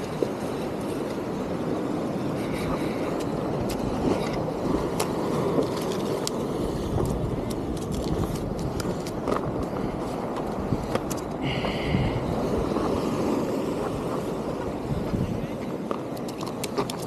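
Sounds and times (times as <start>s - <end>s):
surf: 0.0s - 17.0s
wind on microphone: 0.0s - 17.0s.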